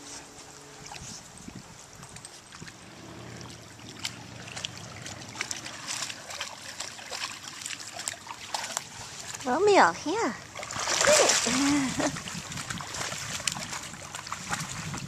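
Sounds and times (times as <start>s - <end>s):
water lapping and trickling: 0.0s - 15.0s
dogs splashing in water: 2.0s - 15.0s.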